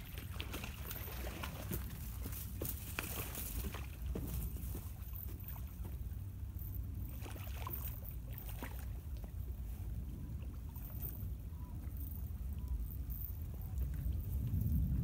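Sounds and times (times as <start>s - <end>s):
faint rustles and ticks: 7.7s - 15.0s
wind buffeting microphone: 9.2s - 15.0s.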